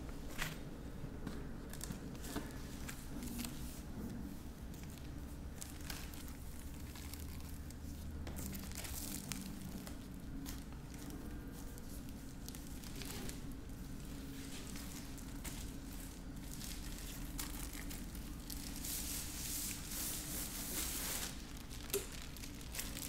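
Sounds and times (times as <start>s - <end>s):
low steady hum: 0.0s - 23.0s
plastic wrapping crinkling: 4.7s - 23.0s.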